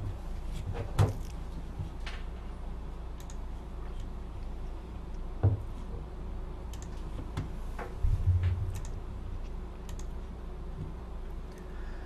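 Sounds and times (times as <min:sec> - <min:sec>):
steady low hum: 0:00.0 - 0:12.0
low thumps at a desk: 0:05.4 - 0:05.7, 0:07.4 - 0:08.7.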